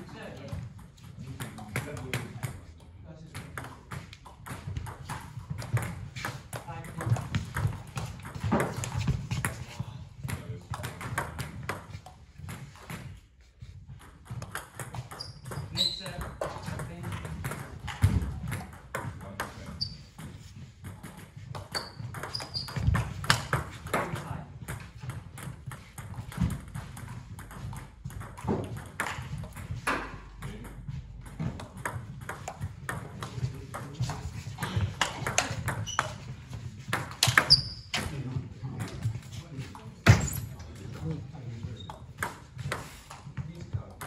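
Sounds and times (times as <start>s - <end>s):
table tennis balls clicking: 3.4s - 13.1s, 13.9s - 38.1s
short high squeaks: 21.7s - 22.8s.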